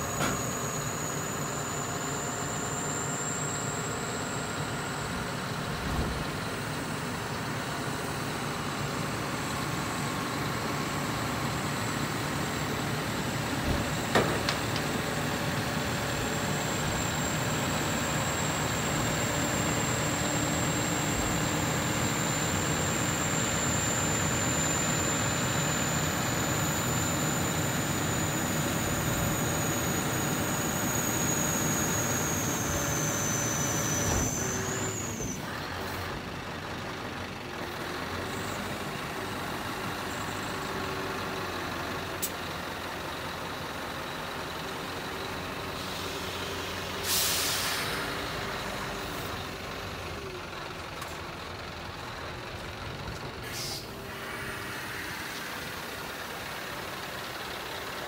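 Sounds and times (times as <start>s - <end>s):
hydraulic lift whine: 0.0s - 42.9s, 52.6s - 57.2s
truck engine running: 0.0s - 58.0s
compressed air hiss: 47.0s - 48.0s, 53.4s - 54.0s.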